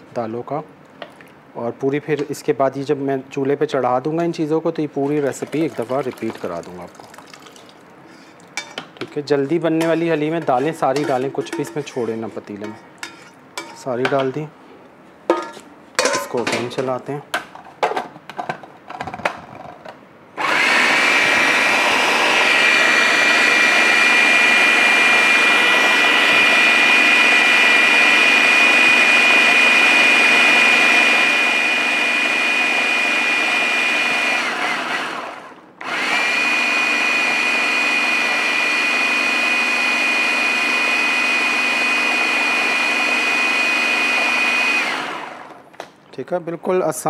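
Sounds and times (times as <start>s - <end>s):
electric food chopper whining: 20.4s - 45.6s.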